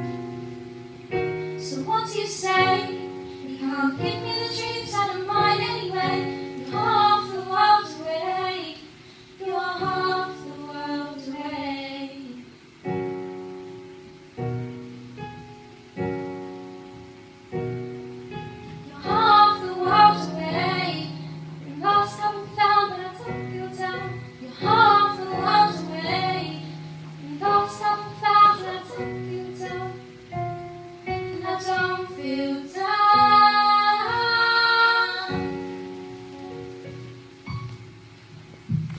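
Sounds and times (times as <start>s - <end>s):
piano chords: 0.0s - 38.9s
person singing: 1.6s - 12.6s, 18.9s - 30.2s, 31.1s - 35.8s.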